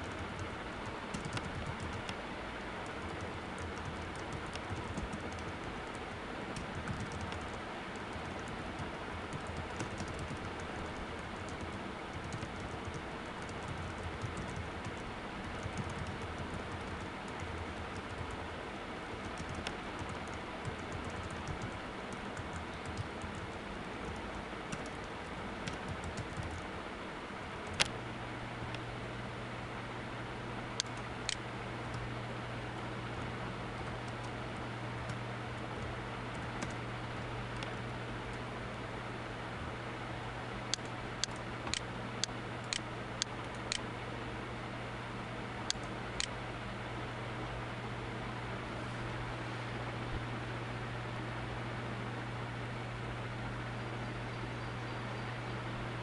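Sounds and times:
keyboard typing: 0:00.0 - 0:02.2, 0:02.8 - 0:18.4, 0:19.2 - 0:26.6, 0:33.2 - 0:37.8.

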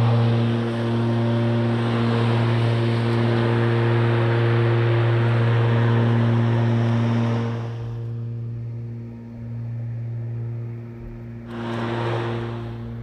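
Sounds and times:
grass being cut: 0:00.0 - 0:07.8, 0:11.4 - 0:13.0
electric lawnmower running: 0:00.0 - 0:13.0.

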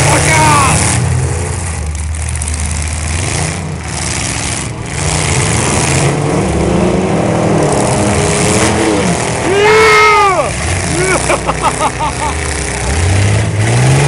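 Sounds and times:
loud shout: 0:00.0 - 0:00.8, 0:09.4 - 0:11.4
car engines revving: 0:00.0 - 0:14.0.

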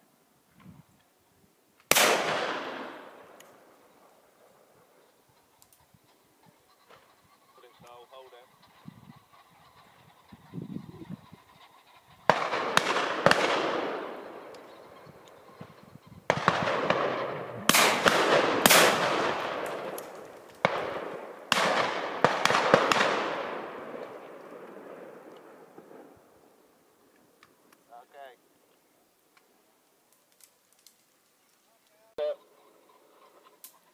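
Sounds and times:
shotgun shots: 0:01.9 - 0:03.4, 0:12.3 - 0:14.5, 0:16.3 - 0:26.0
rolling echo of gunshots: 0:01.9 - 0:03.8, 0:12.2 - 0:14.6, 0:16.3 - 0:26.3.

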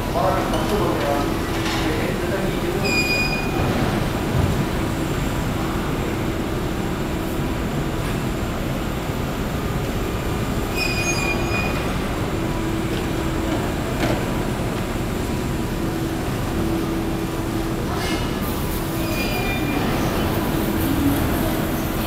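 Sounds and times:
electric train rumbling on rails: 0:00.0 - 0:22.0
high wheel squeals: 0:02.8 - 0:03.6, 0:10.7 - 0:12.1, 0:18.0 - 0:22.0.

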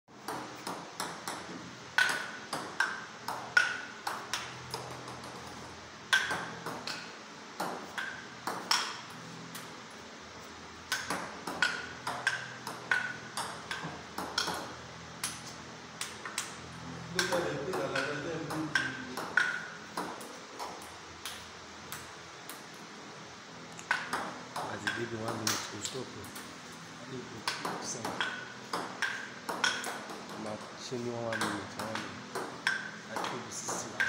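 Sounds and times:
table tennis ball clicking: 0:00.3 - 0:05.4, 0:06.1 - 0:09.0, 0:10.9 - 0:15.4, 0:17.2 - 0:22.7, 0:27.4 - 0:30.4, 0:31.3 - 0:34.0.

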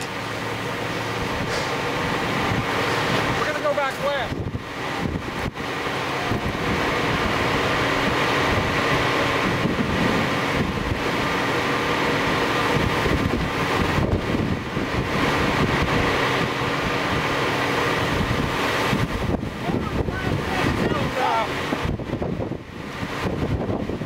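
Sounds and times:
rushing wind: 0:00.0 - 0:24.0.

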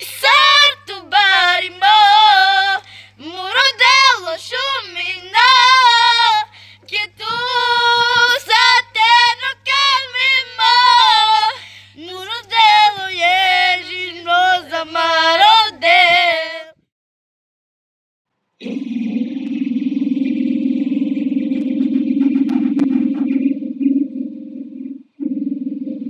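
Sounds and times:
high voice singing with vibrato: 0:00.0 - 0:16.8
faint low hum: 0:18.4 - 0:26.0.

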